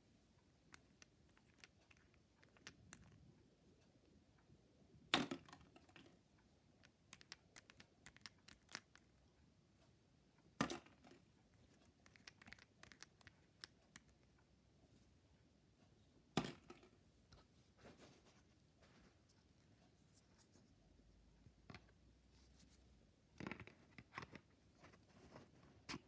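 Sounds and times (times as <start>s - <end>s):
light plastic clicks and handling: 0.4s - 4.5s, 5.1s - 14.5s, 23.4s - 26.0s.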